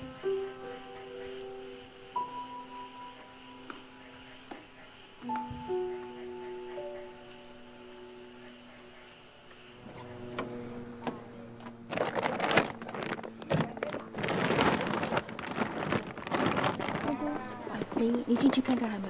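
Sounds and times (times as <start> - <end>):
soft music: 0.0 - 11.9
bags rustling and knocking: 11.0 - 19.0.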